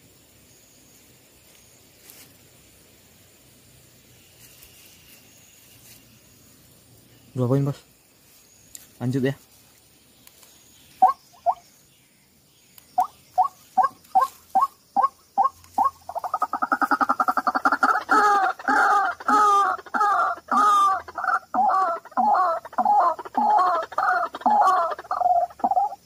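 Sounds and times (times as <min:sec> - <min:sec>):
waterhen calling: 0:11.0 - 0:11.6, 0:13.0 - 0:26.0.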